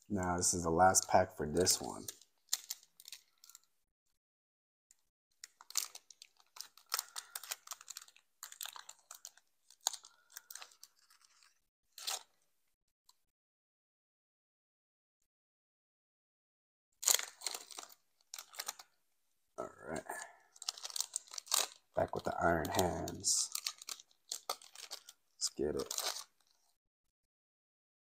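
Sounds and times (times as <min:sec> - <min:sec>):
foil wrapper crinkling and tearing: 0:01.0 - 0:03.7, 0:05.4 - 0:12.4, 0:17.0 - 0:18.9, 0:20.1 - 0:26.7.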